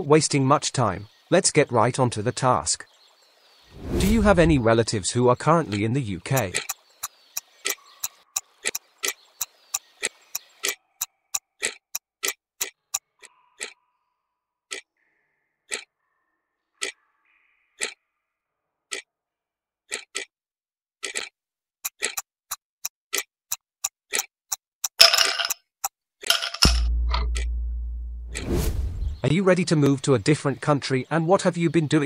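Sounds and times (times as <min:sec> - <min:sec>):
clock ticking: 0:05.6 - 0:13.0, 0:21.0 - 0:25.2, 0:26.9 - 0:28.5.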